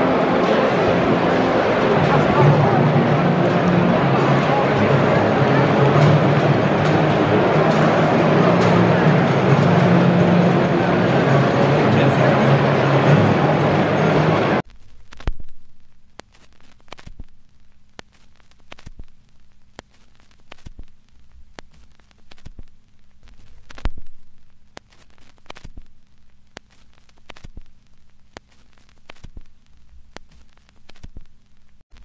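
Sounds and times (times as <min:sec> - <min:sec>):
low steady hum: 0:00.0 - 0:32.0
clicks and crackles: 0:14.6 - 0:32.0.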